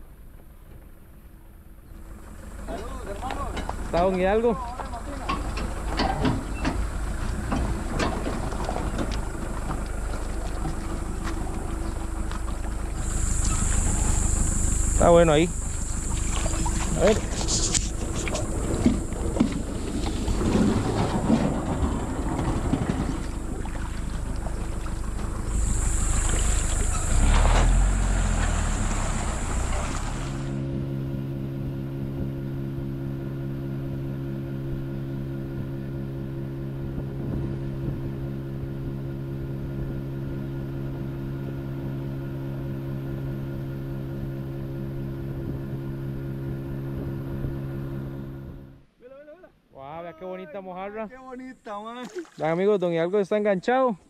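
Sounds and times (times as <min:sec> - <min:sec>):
outboard motor running: 0:00.1 - 0:48.8
water noise: 0:02.0 - 0:30.7, 0:51.7 - 0:53.0.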